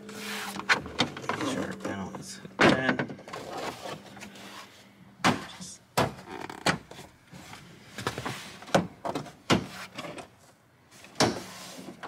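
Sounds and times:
hand scraping along panel: 0:00.0 - 0:00.8.

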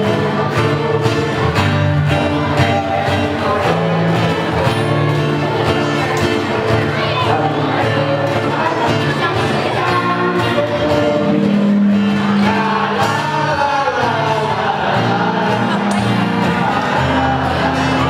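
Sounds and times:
group singing together: 0:00.0 - 0:05.0, 0:06.9 - 0:18.0
acoustic guitar: 0:00.0 - 0:18.0.

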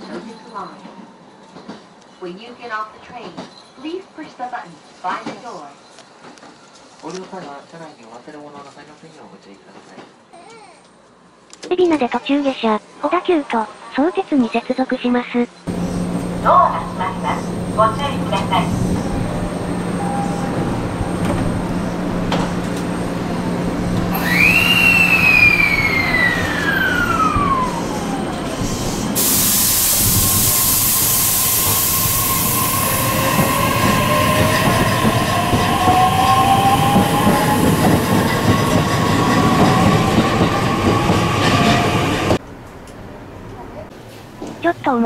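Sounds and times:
moving train noise: 0:00.0 - 0:08.9, 0:11.5 - 0:45.0
electric train traction whine: 0:15.7 - 0:42.4.

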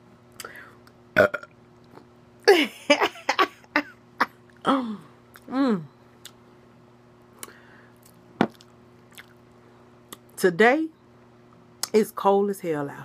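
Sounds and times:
woman's throaty vocal sounds: 0:04.6 - 0:05.9.

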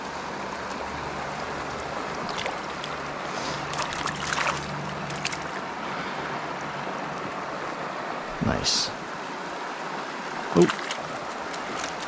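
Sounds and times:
river flowing over rocks: 0:00.0 - 0:12.0
short splashes and clicks: 0:02.2 - 0:03.0, 0:03.6 - 0:05.6, 0:10.6 - 0:12.0.

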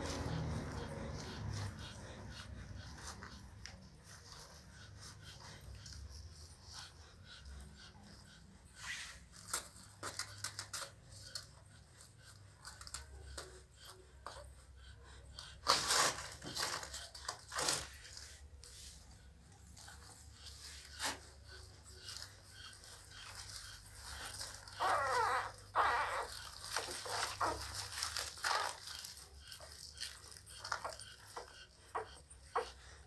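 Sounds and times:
puppies whimpering and squeaking: 0:00.0 - 0:33.0
puppy wavering whine: 0:21.2 - 0:32.8.

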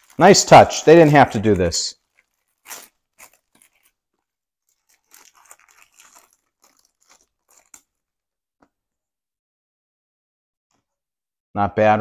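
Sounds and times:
plastic sleeve crinkling: 0:00.0 - 0:08.8.

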